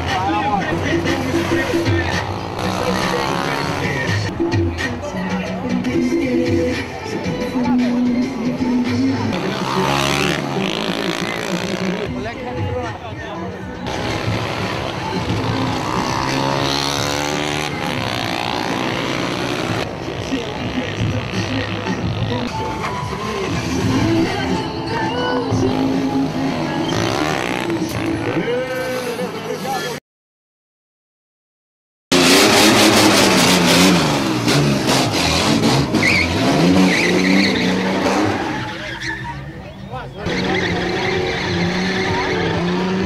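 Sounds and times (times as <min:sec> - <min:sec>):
motorcycle engine revving: 0:00.0 - 0:04.4, 0:08.7 - 0:12.4, 0:13.8 - 0:22.6, 0:25.3 - 0:29.8, 0:32.1 - 0:38.9, 0:40.2 - 0:43.0
tyres squealing: 0:32.6 - 0:43.0.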